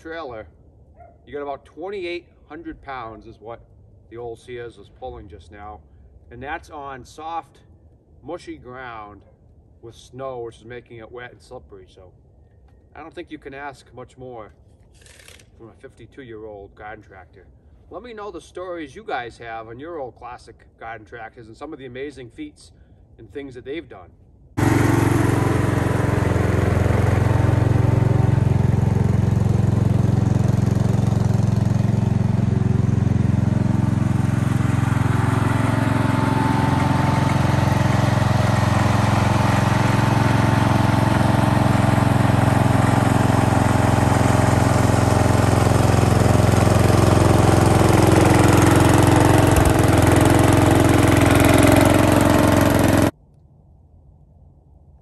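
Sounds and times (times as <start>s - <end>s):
garden tractor engine running: 24.6s - 53.1s.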